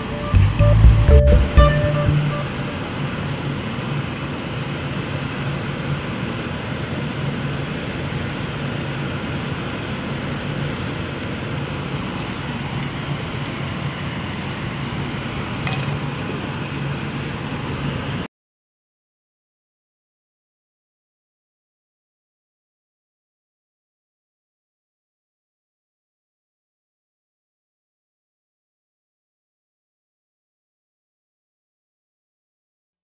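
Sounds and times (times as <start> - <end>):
stir-fry sizzling in pan: 2.5 - 18.2.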